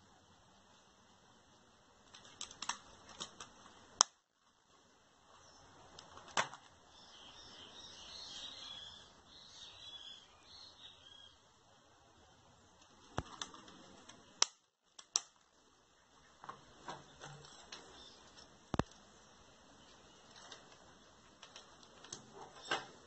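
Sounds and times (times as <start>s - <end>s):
birds chirping: 6.9s - 11.6s, 15.8s - 23.0s.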